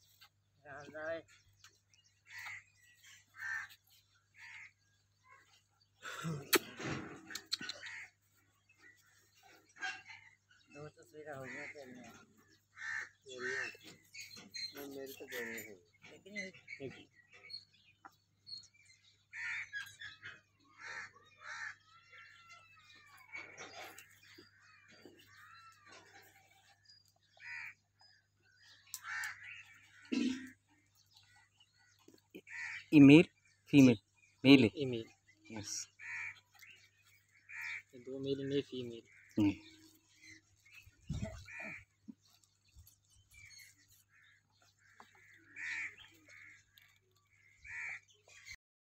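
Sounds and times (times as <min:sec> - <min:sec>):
faint bird calls: 0:00.0 - 0:48.6
crows cawing: 0:02.2 - 0:05.5, 0:06.9 - 0:10.7, 0:11.3 - 0:14.0, 0:19.1 - 0:33.6, 0:35.6 - 0:42.4, 0:43.3 - 0:48.6.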